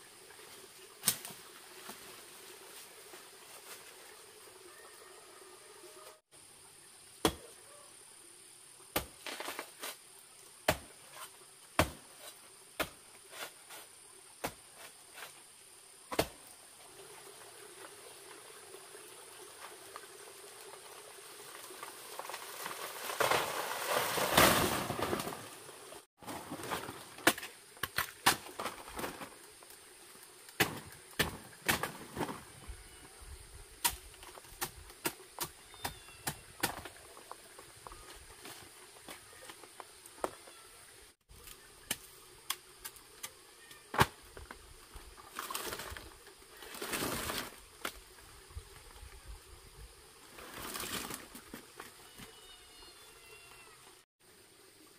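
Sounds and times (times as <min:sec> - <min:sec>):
machete chopping plant trunk: 0:07.2 - 0:07.5, 0:10.7 - 0:10.9, 0:11.8 - 0:12.1, 0:16.1 - 0:16.4, 0:30.6 - 0:32.0
plant crashing down rustling: 0:22.6 - 0:25.6.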